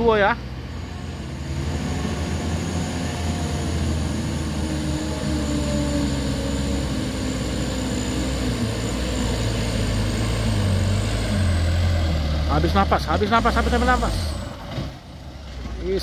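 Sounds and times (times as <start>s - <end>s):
diesel truck engine pulling uphill: 0.0s - 16.0s.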